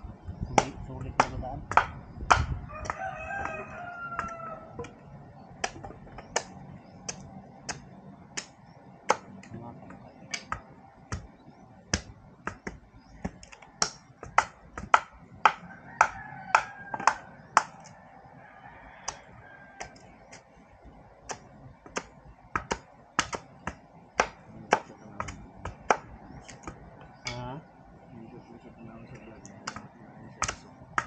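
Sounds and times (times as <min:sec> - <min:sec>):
rooster crowing: 0:02.5 - 0:05.0, 0:15.5 - 0:20.3.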